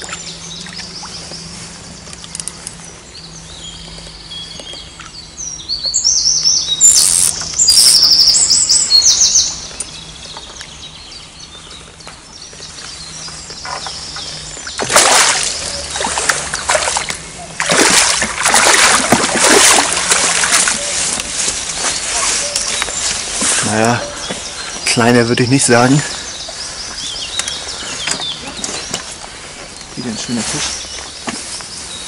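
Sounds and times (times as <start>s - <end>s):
songbird chirping: 0.0s - 32.0s
water splash: 14.7s - 21.0s.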